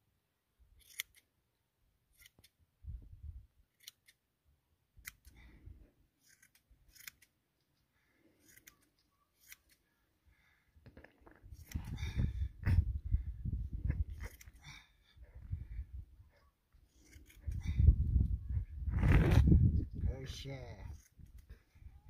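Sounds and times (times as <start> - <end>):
hand shears snipping: 0.8 - 1.3, 2.1 - 2.6, 5.0 - 5.4, 6.2 - 7.4, 8.4 - 9.8, 14.1 - 14.6.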